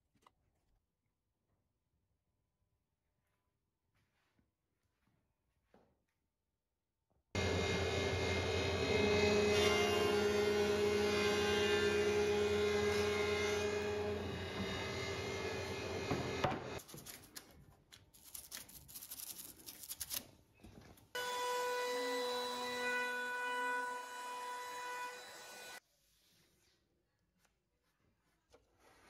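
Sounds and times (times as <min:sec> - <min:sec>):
thicknessing machine running: 0:07.4 - 0:16.8.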